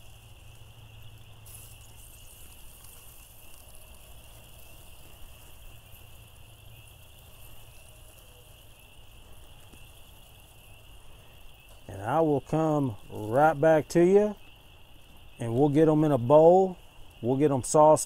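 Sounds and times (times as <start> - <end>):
night insects trilling: 0.0 - 18.0.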